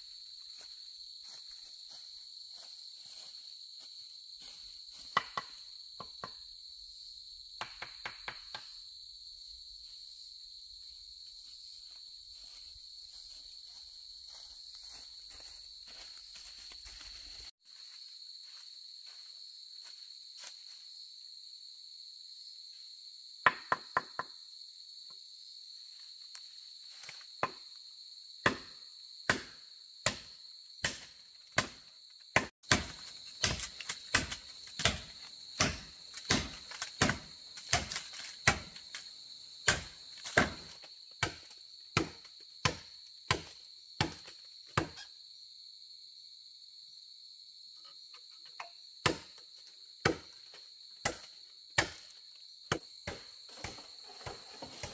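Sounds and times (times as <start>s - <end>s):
chopping blows into bamboo: 5.0s - 6.4s, 28.4s - 38.9s, 39.6s - 45.0s, 48.6s - 49.4s.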